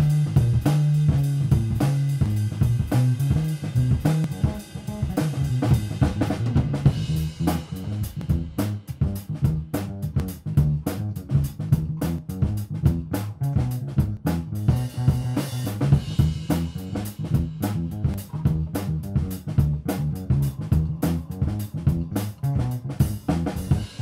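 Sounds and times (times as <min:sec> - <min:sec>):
bass line: 0:00.0 - 0:24.0
drum kit steady beat: 0:00.0 - 0:24.0.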